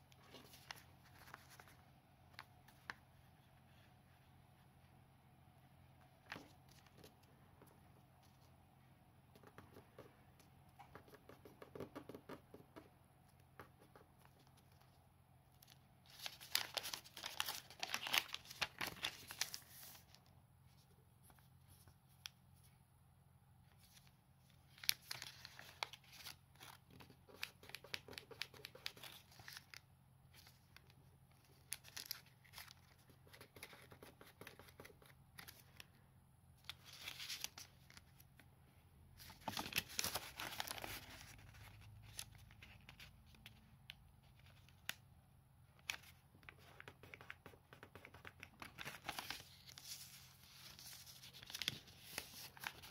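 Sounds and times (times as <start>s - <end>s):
paper rustling and crinkling: 0.1s - 3.0s, 15.6s - 20.3s, 23.8s - 35.8s, 36.6s - 38.2s, 39.2s - 43.6s, 45.8s - 52.9s.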